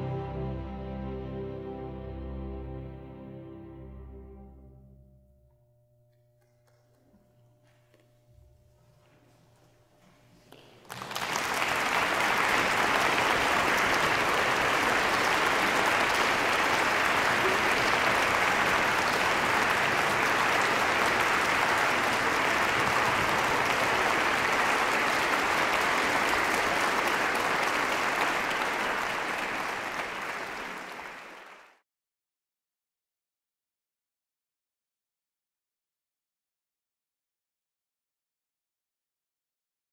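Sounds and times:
audience applauding: 10.5 - 31.8.

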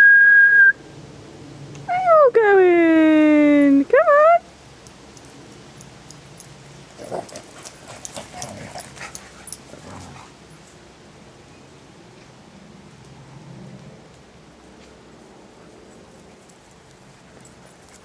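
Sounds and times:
dogs running on grass: 6.6 - 10.8.

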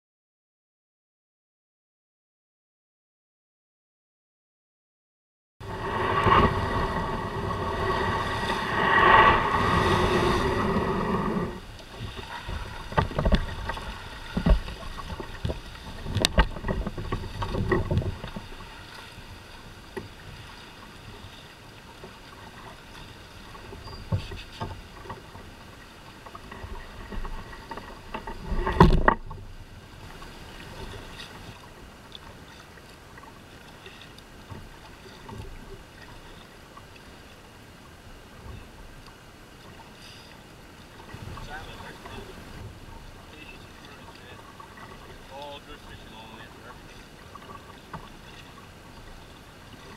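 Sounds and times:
steady rush: 5.6 - 11.6
wind on microphone: 5.6 - 18.7
paddle splashing in water: 5.6 - 49.9
paddle knocking against hull: 6.1 - 36.4, 40.9 - 49.9.

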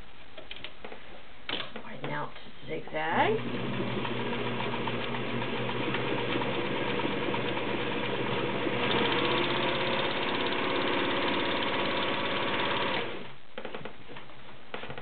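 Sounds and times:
sewing machine running: 3.4 - 13.3.

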